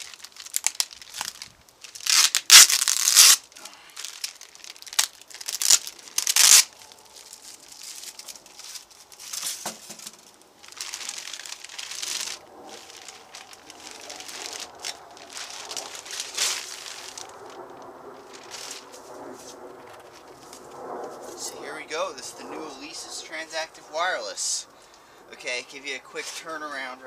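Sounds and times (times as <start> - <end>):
plastic bag crinkling: 0.0 - 21.5.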